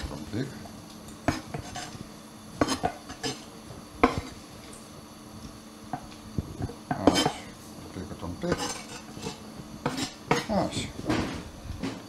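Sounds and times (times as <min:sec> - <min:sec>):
knife scraping wooden board: 0:01.3 - 0:02.0, 0:08.5 - 0:10.6.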